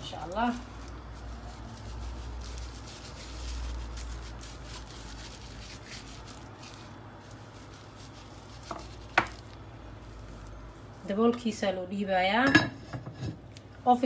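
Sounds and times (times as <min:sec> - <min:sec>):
gloved hand rubbing chicken skin: 0:00.0 - 0:10.6.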